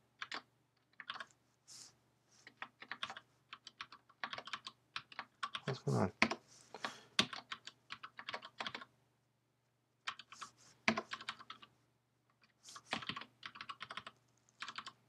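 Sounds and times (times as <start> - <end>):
typing on computer keyboard: 0.2 - 1.3, 2.5 - 6.4, 7.2 - 8.9, 10.0 - 11.7, 12.4 - 15.0.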